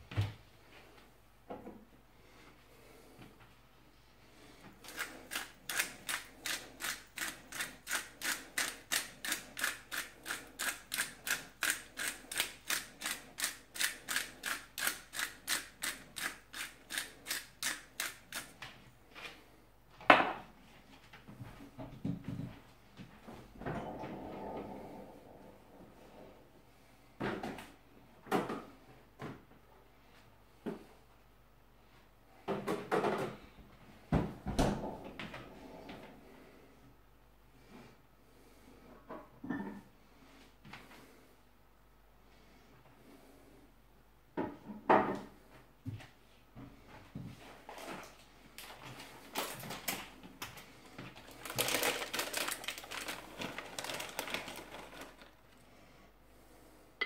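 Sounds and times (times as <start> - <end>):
spice grinder crunching clicks: 4.9 - 18.5.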